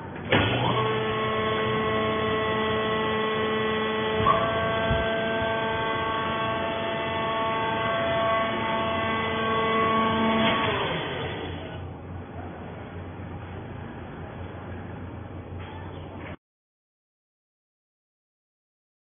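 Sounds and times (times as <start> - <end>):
hydraulic motor whining and humming: 0.0 - 12.0.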